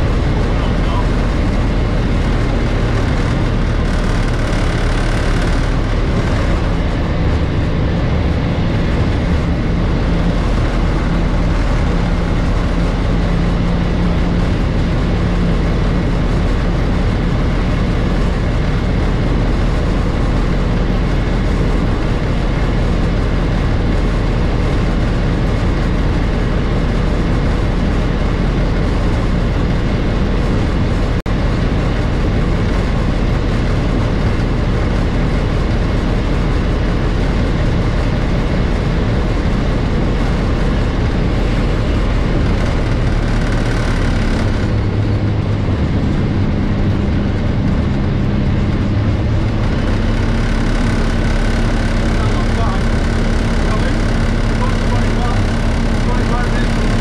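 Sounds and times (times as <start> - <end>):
diesel locomotive engine drone: 0.0 - 57.0.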